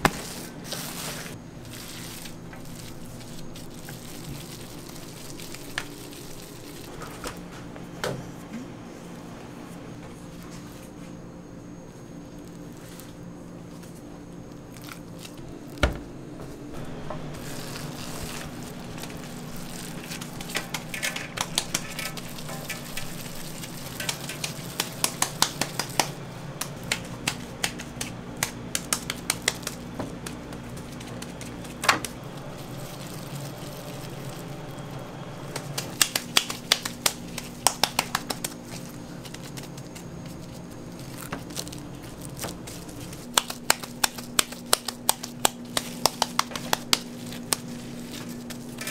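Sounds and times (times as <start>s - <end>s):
steady low hum: 0.0s - 48.9s
hands slapping meat: 23.6s - 32.2s, 35.5s - 39.9s, 43.3s - 48.2s.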